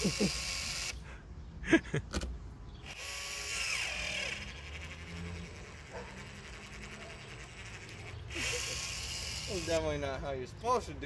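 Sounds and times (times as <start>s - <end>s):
caulking gun mechanical whirr: 0.0s - 1.0s, 2.8s - 9.9s.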